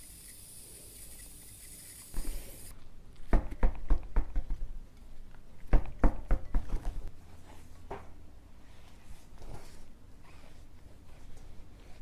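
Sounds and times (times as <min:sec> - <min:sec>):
air hiss: 0:00.0 - 0:02.7.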